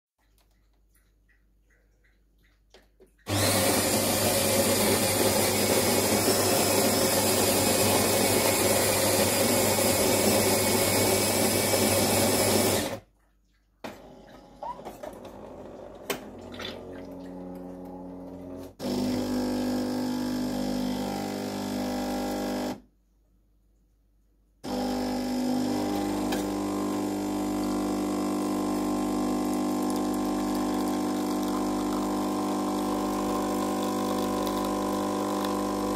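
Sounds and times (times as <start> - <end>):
pump humming: 3.2 - 11.4, 13.9 - 22.8, 24.7 - 35.9
coffee machine grinding beans: 3.3 - 13.0, 14.7 - 22.8, 24.7 - 35.9.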